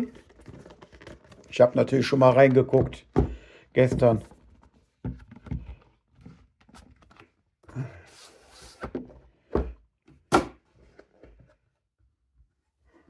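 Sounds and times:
box scraping slide: 8.1 - 9.0.

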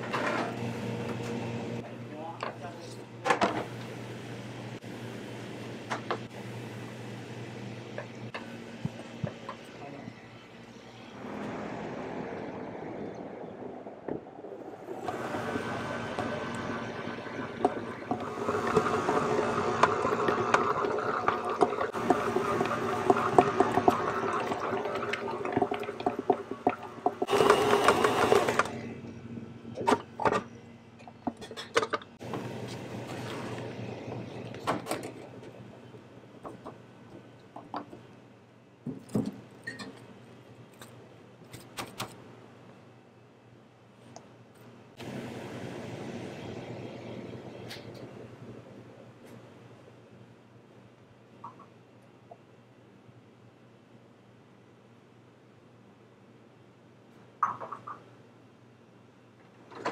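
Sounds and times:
stand mixer motor hum: 15.0 - 24.8, 26.9 - 28.8.

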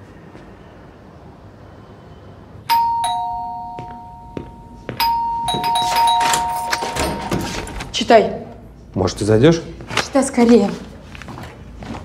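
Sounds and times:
two-tone doorbell chime: 2.7 - 7.6.

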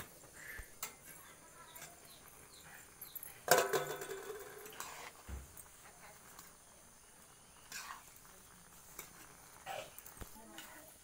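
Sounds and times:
metal ladle clanking on wok: 3.4 - 5.0.

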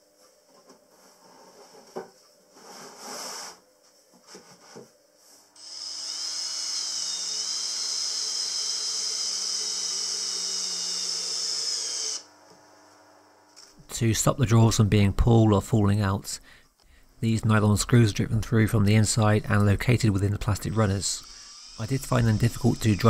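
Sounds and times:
cordless drill driving a screw: 5.6 - 12.3, 21.2 - 23.0.

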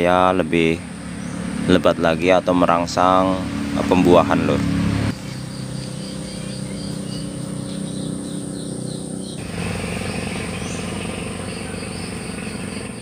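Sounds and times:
low engine-like hum: 0.0 - 13.0
insects chirping: 5.1 - 13.0.

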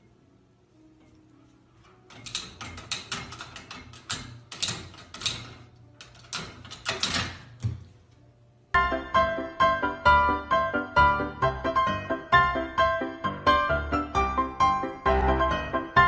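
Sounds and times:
plastic latch rattling and clacking: 2.1 - 7.7.

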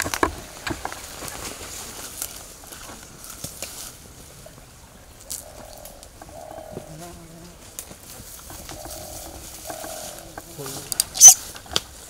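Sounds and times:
buzzing animal calls: 8.6 - 11.5.

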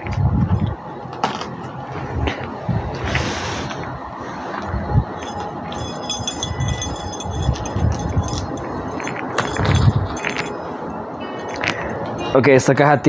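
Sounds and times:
keys jangling: 0.5 - 1.5, 5.1 - 12.4.

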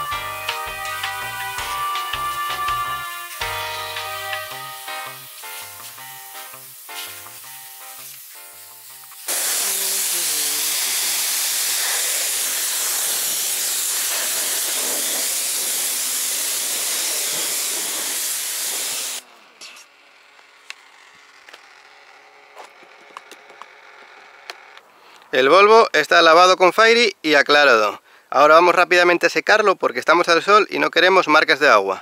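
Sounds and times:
background music: 0.0 - 9.3
pressure washer jet hissing: 0.0 - 19.2.

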